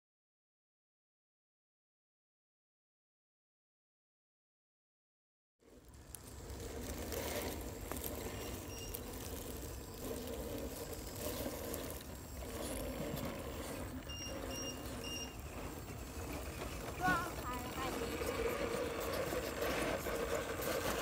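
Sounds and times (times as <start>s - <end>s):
electric motor and gearbox whirring: 5.6s - 21.0s
short high-pitched beeps: 14.1s - 15.4s.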